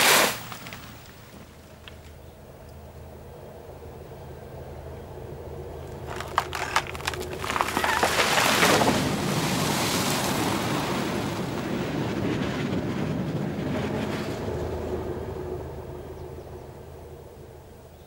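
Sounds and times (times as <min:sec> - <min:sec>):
water and branches rushing: 0:00.0 - 0:01.6, 0:05.9 - 0:15.1
tree cracking: 0:00.0 - 0:02.2, 0:05.9 - 0:11.8
tree splashing into water: 0:06.1 - 0:11.7.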